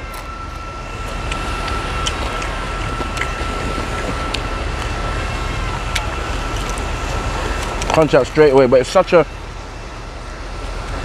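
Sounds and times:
faint whine: 0.0s - 11.0s
wind rumble on microphone: 0.0s - 11.0s.

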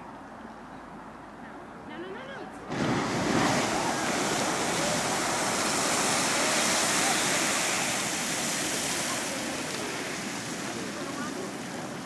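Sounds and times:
geyser water and steam rushing: 2.7s - 12.0s.

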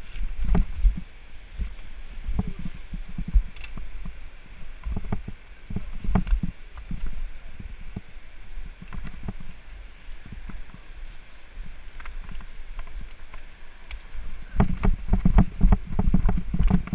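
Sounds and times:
wind buffeting microphone: 0.0s - 16.9s
mountain bike rattling on rocks: 4.8s - 8.1s, 11.6s - 16.9s.

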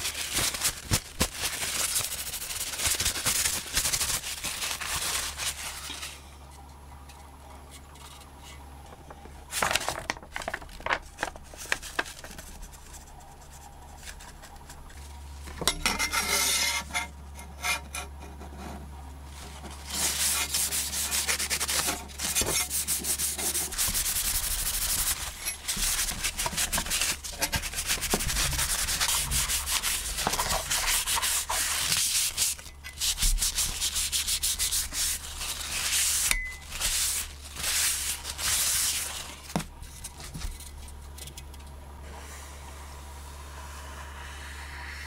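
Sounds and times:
cloth rubbing on wood: 19.3s - 39.4s.

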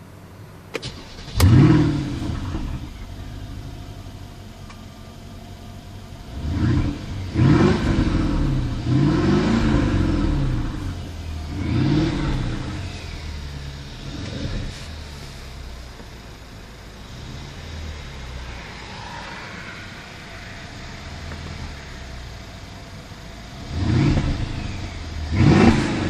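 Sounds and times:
car engine starting and idling: 0.0s - 26.0s
engine revving in short blips: 23.6s - 26.0s.

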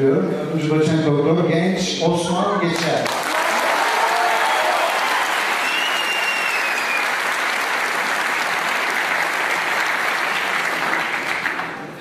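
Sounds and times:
audience applauding: 2.8s - 12.0s
faint high whistle: 5.6s - 7.2s.

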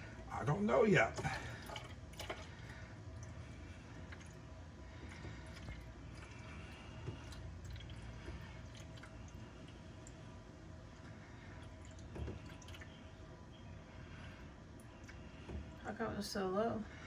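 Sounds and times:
liquid trickling and dripping: 1.2s - 13.3s.

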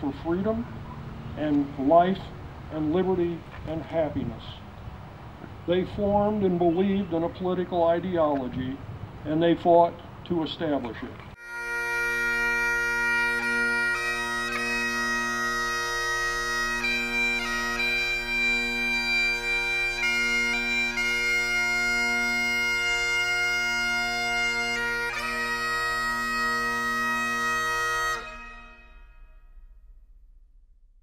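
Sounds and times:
bagpipes playing: 11.4s - 29.5s.

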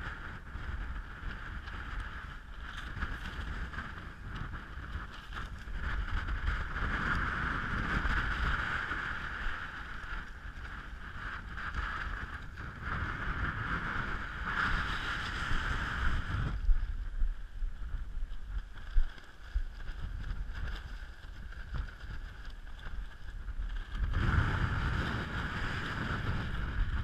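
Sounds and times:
wind buffeting microphone: 0.0s - 27.0s
tent fabric rustling and flapping: 17.8s - 27.0s.

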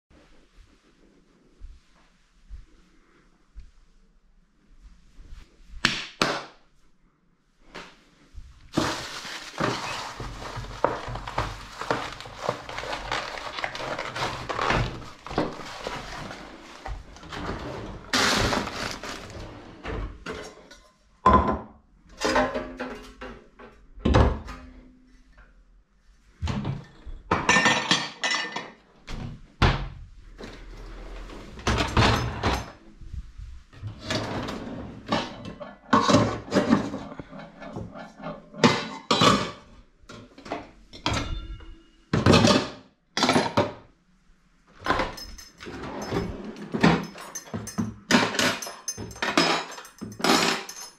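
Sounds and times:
dishes clinking and clattering: 27.3s - 28.8s, 31.6s - 32.8s, 40.5s - 43.8s, 44.8s - 50.9s.

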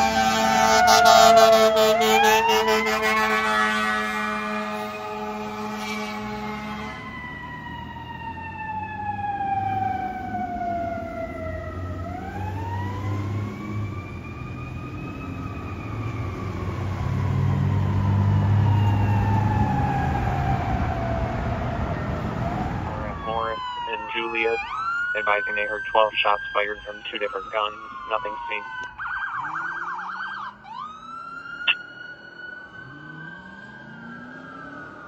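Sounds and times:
air horn blast: 0.0s - 7.1s
fire engine siren wailing: 0.0s - 35.0s.

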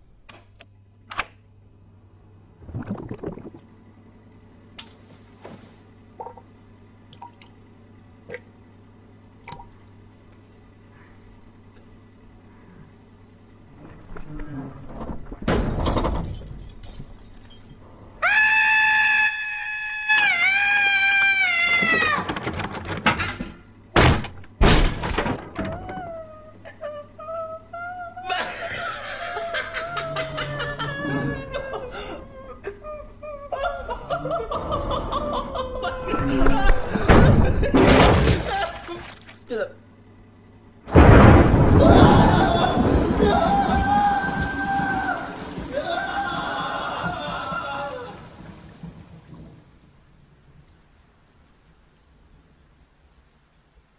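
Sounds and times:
low hum: 0.0s - 22.0s, 23.0s - 53.4s
water dripping into toilet: 7.1s - 7.7s, 9.4s - 9.8s.

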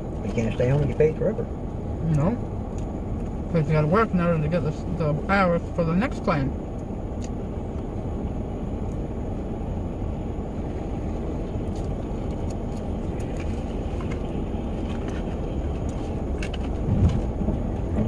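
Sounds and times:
low rumble in van cabin: 0.0s - 18.0s
light rain ticks: 2.0s - 3.4s.

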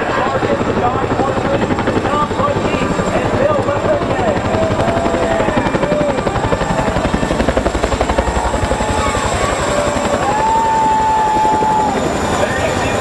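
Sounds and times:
helicopter rotors chopping: 0.0s - 13.0s.

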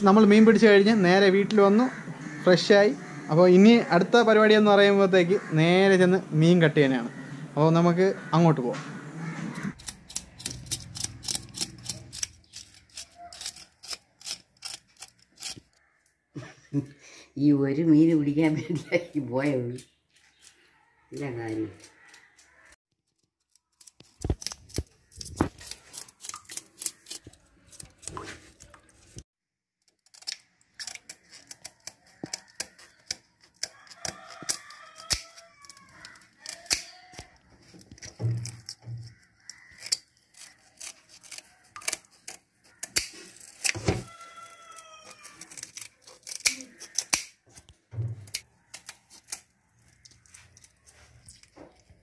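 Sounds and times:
scissors scraping fish scales: 9.7s - 15.8s, 21.2s - 22.7s, 23.5s - 29.2s, 30.0s - 47.7s, 48.3s - 52.0s
scissors snipping fins: 9.8s - 15.6s, 23.7s - 29.2s, 30.0s - 37.3s, 44.7s - 47.4s.

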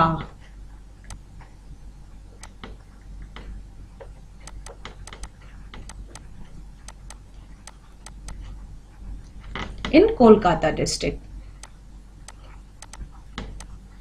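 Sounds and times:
faint low hum: 0.0s - 14.0s
stylus tapping on tablet: 4.4s - 6.3s, 6.9s - 8.5s, 11.6s - 13.8s.

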